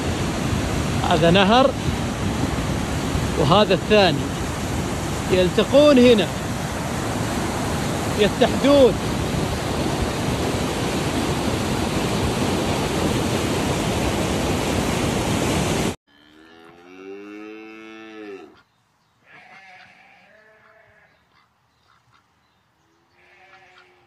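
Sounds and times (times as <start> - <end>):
muddy river rushing: 0.0 - 16.0
cow mooing: 16.1 - 18.6, 19.3 - 21.1, 23.2 - 24.0
faint animal call: 18.3 - 24.0.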